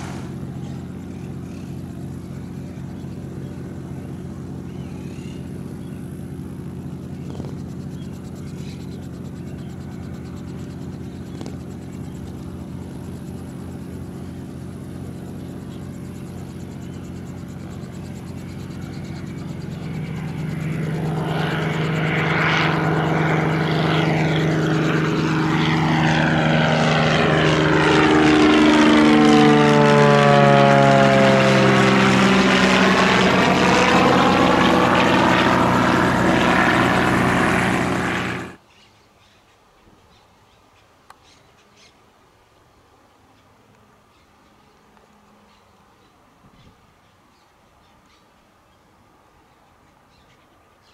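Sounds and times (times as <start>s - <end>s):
propeller plane passing overhead: 0.0s - 38.6s.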